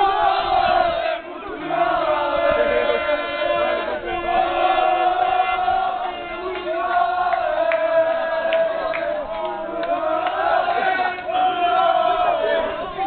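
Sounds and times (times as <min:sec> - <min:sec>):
men chanting together: 0:00.0 - 0:13.0.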